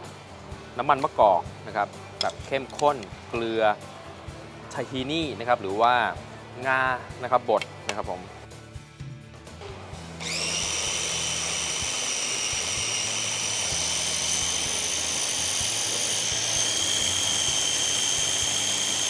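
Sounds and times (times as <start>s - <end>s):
food processor motor whine: 10.2s - 19.0s.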